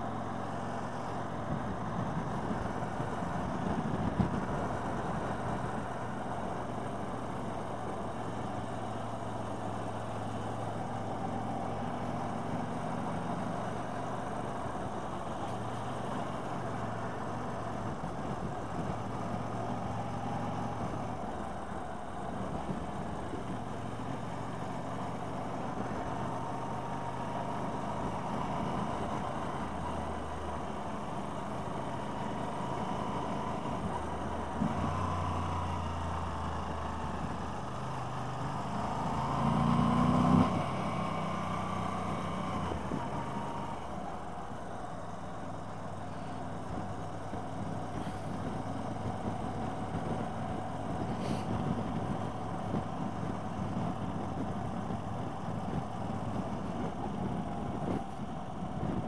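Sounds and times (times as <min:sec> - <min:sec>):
wind noise: 0:00.6 - 0:07.9, 0:46.6 - 0:59.0.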